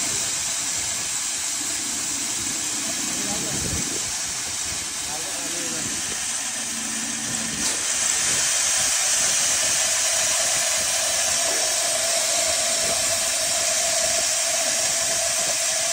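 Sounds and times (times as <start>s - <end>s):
feed grinder running: 0.0s - 15.9s.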